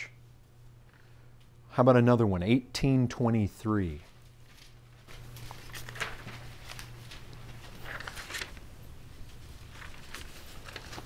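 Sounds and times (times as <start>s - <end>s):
steady low hum: 0.0s - 11.0s
paper pages rustling: 4.0s - 11.0s.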